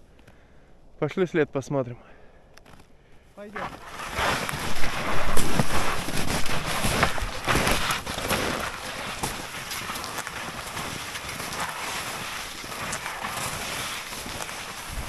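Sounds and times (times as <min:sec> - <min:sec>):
skis crunching over dry snow: 0:03.4 - 0:15.0.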